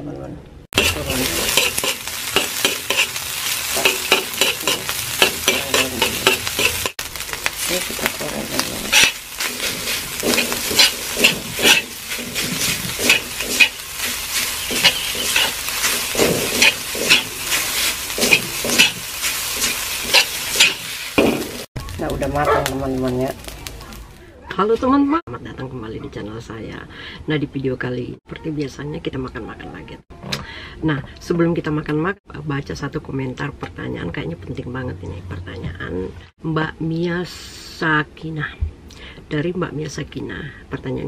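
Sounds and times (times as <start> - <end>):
metal spatula scraping a wok: 0.8 - 21.7
oil sizzling in a wok: 0.8 - 24.2.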